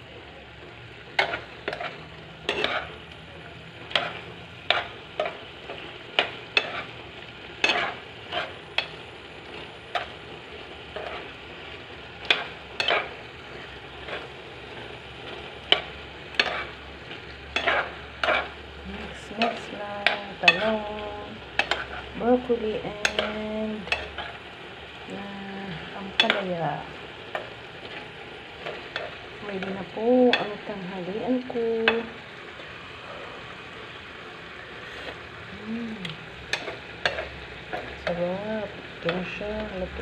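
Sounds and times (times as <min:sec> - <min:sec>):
food sizzling: 0:00.0 - 0:40.0
spatula scraping a wok: 0:01.1 - 0:03.1, 0:03.8 - 0:10.2, 0:10.9 - 0:11.4, 0:12.2 - 0:24.4, 0:34.6 - 0:35.3.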